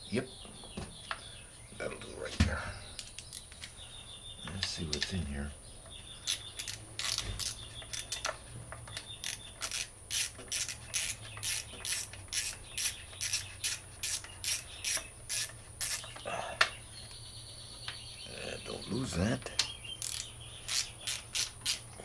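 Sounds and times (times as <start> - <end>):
ratchet wrench clicking: 6.2 - 16.1, 20.0 - 22.0.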